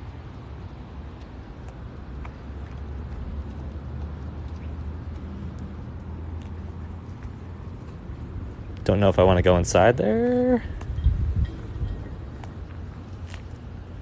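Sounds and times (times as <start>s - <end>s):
low outdoor rumble: 0.0s - 14.0s
footsteps on gritty concrete: 1.2s - 8.2s, 12.3s - 14.0s.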